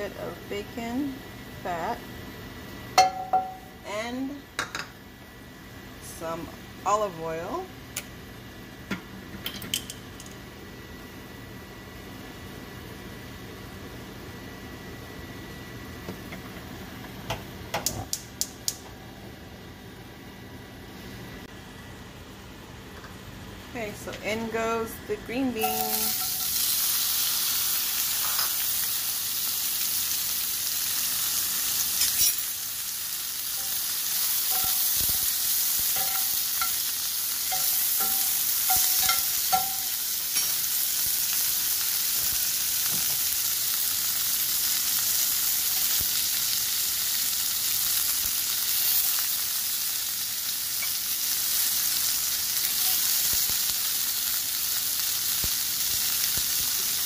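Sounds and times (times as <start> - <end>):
vegetables sizzling in oil: 24.4 - 57.0.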